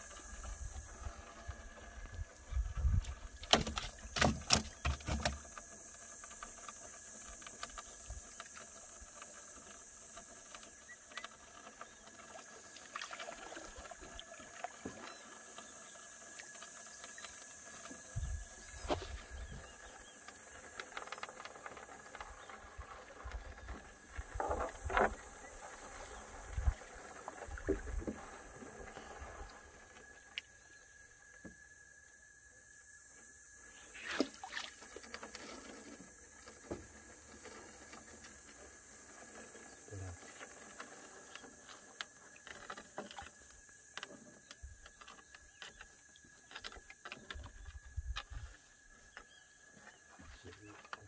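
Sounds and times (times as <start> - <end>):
steady high hiss: 0.0 - 12.7, 13.6 - 51.0.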